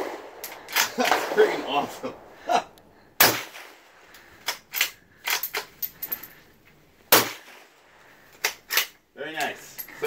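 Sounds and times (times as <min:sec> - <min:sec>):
loud gunshot: 0:00.0 - 0:02.1, 0:03.2 - 0:03.9, 0:07.1 - 0:07.7
rifle bolt metallic clicks: 0:04.1 - 0:05.9.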